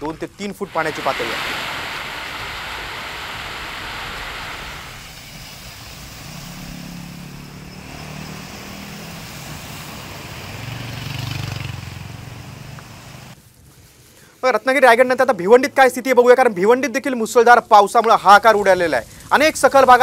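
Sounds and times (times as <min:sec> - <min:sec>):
heavy rain hissing: 0:00.2 - 0:13.4, 0:18.3 - 0:20.0
passing traffic: 0:00.7 - 0:13.4.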